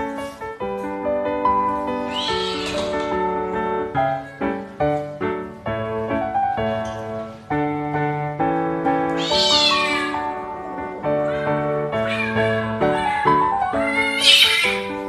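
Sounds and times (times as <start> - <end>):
background music melody: 0.0 - 15.0
high-pitched animal cry: 2.0 - 2.9, 9.2 - 10.2, 11.2 - 14.9.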